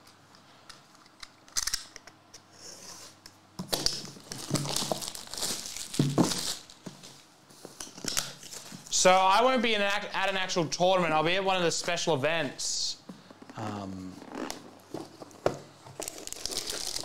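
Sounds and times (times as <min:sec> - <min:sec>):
plastic shrink wrap tearing: 0:03.8 - 0:06.8, 0:16.0 - 0:17.0.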